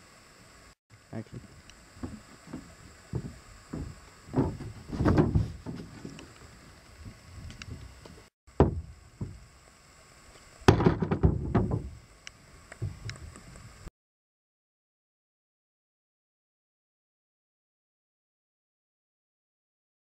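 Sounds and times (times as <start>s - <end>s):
wooden boards knocking: 2.0s - 6.2s, 8.6s - 9.4s, 10.7s - 11.9s.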